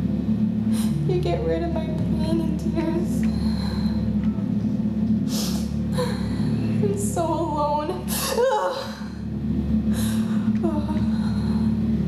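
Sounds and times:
background music: 0.0s - 12.0s
woman sobbing and gasping: 5.3s - 6.8s, 8.0s - 9.3s, 10.0s - 11.9s.

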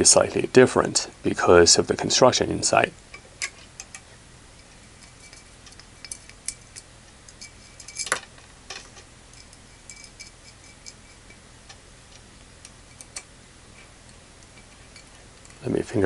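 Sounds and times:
metal connectors clicking: 3.0s - 15.6s.

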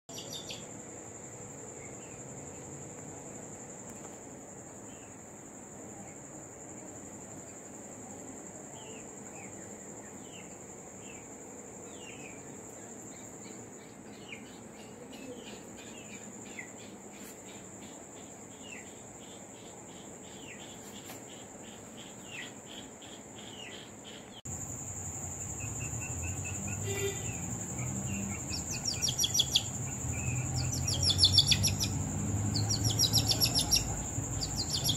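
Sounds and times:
crickets trilling: 0.1s - 34.9s
duckling peeping: 24.9s - 34.9s.

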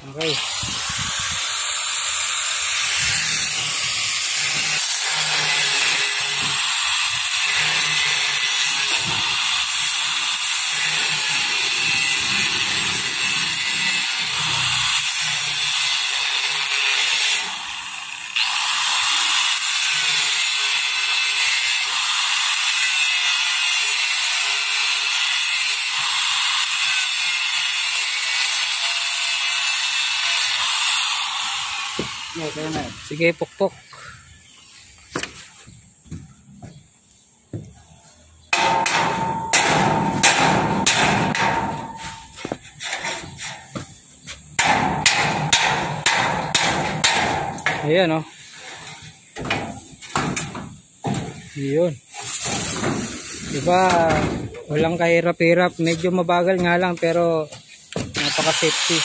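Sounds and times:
angle grinder cutting steel: 0.0s - 33.4s, 38.7s - 50.0s, 56.8s - 59.0s.

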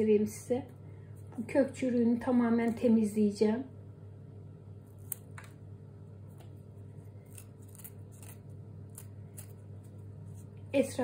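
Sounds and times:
small blade scraping plant stem: 4.9s - 5.5s, 7.0s - 10.5s.

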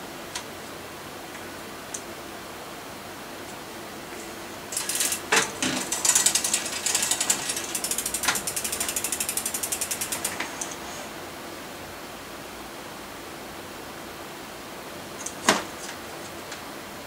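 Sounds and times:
bike freewheel clicking: 4.7s - 10.8s.

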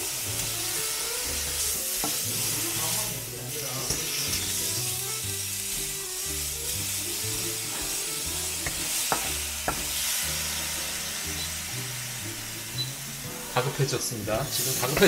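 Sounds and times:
fish roe sizzling in frying pan: 0.0s - 15.0s.

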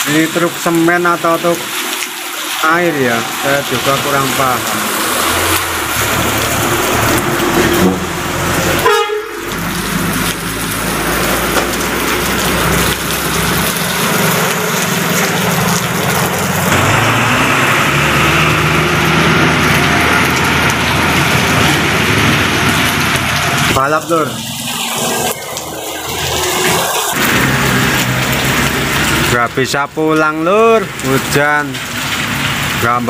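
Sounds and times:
diesel trucks driving past: 0.0s - 33.0s
heavy rain: 0.0s - 33.0s
tyres hissing through water: 0.0s - 33.0s.

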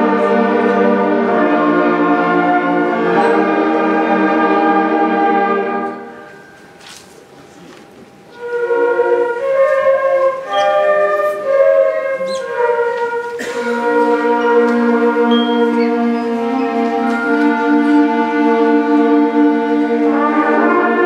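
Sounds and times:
concert band playing: 8.4s - 21.0s.

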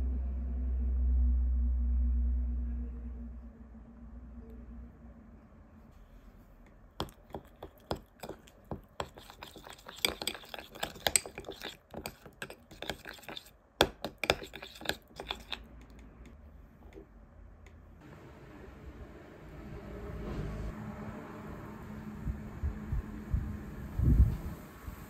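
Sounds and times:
spoon clinking against glass bowl: 7.0s - 16.0s.

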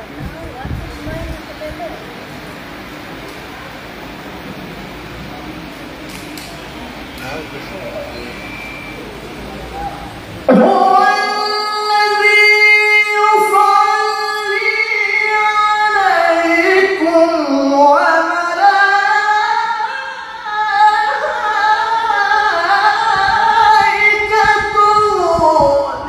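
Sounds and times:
man reciting melodically into microphone: 10.5s - 26.0s.

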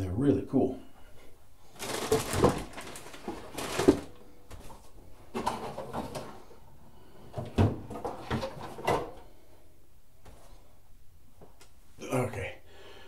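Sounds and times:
small objects clattering: 1.8s - 4.2s.

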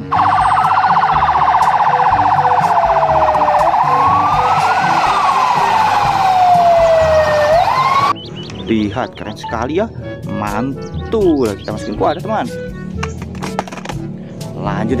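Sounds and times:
fast warbling siren tone: 0.0s - 8.2s
fire truck siren wailing: 0.0s - 8.2s.

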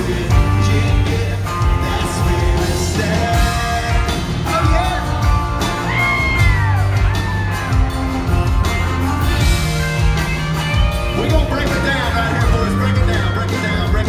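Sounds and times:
male singer: 0.0s - 5.3s, 11.2s - 14.0s
live country band playing: 0.0s - 14.0s
audience whooping: 5.6s - 8.6s.

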